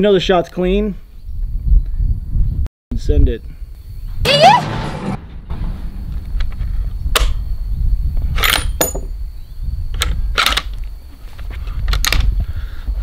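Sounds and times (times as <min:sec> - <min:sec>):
low rumble: 0:03.9 - 0:08.2.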